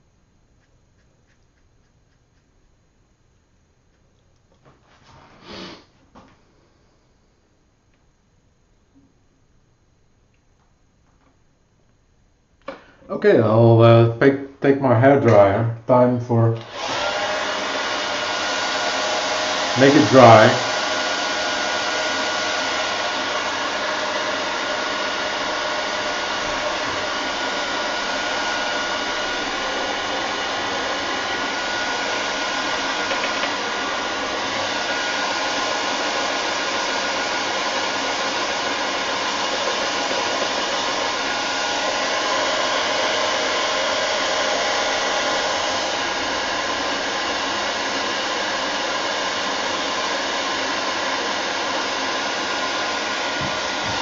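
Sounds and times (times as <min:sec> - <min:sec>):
hairdryer blowing: 0:05.1 - 0:05.8, 0:12.6 - 0:12.9, 0:16.5 - 0:54.0.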